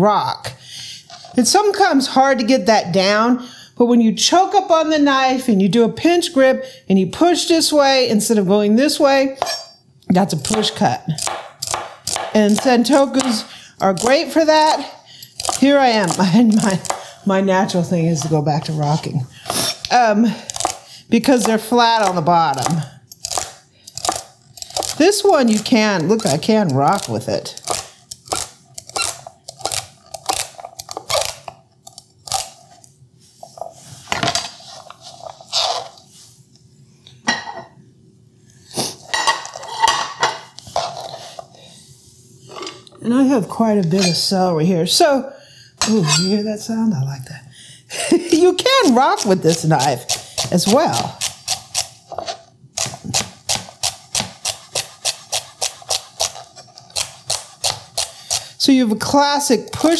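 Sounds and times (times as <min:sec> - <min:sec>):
knife chopping celery on board: 0:10.5 - 0:14.7, 0:52.8 - 0:58.5
knife chopping on plastic board: 0:11.2 - 0:13.4.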